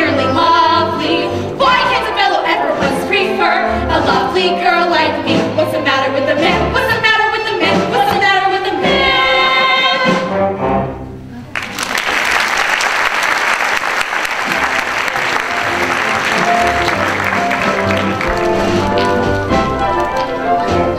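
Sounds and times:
women singing with instruments: 0:00.0 - 0:10.2
audience applause: 0:11.5 - 0:20.9.

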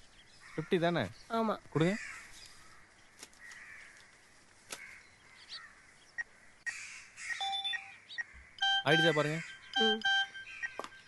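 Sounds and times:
distant crows cawing: 0:00.4 - 0:00.9, 0:01.8 - 0:09.8
short electronic beeps: 0:07.4 - 0:08.0, 0:08.6 - 0:11.0.

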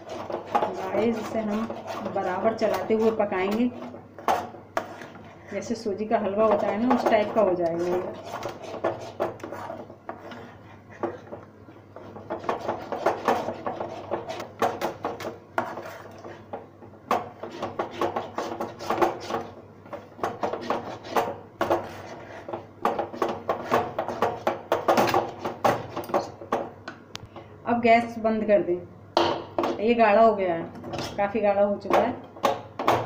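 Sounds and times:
steel spoon scraping metal pot: 0:00.0 - 0:11.3, 0:12.0 - 0:16.3.

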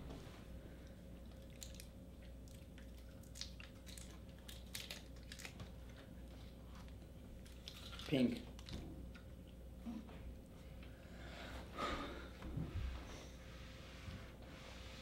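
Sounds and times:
low room hum: 0:00.0 - 0:15.0
chewing: 0:01.2 - 0:09.6
candy wrappers crinkling: 0:03.1 - 0:06.0, 0:07.4 - 0:08.7.

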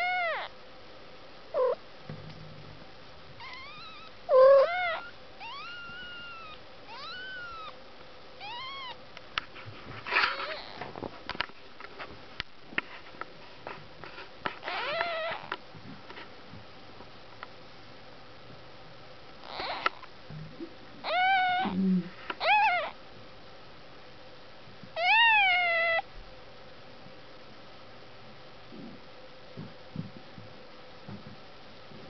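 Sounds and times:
kittens mewing: 0:00.0 - 0:00.5, 0:01.6 - 0:01.8, 0:03.4 - 0:07.8, 0:08.4 - 0:09.0, 0:10.1 - 0:10.8, 0:14.6 - 0:15.6, 0:19.4 - 0:20.0, 0:21.0 - 0:21.8, 0:22.4 - 0:23.0, 0:25.0 - 0:26.0
rustle: 0:08.5 - 0:16.4.

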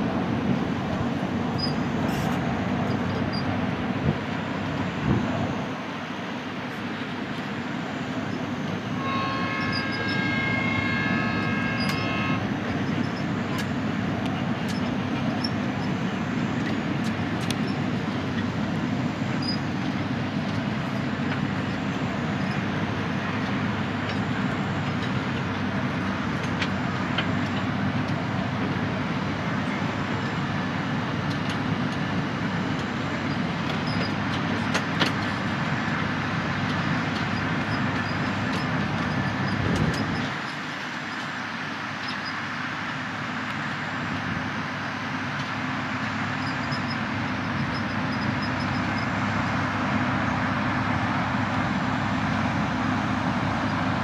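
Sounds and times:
train wheels rumbling on rail: 0:00.0 - 0:54.0
held high multi-pitch tone: 0:09.0 - 0:12.4.

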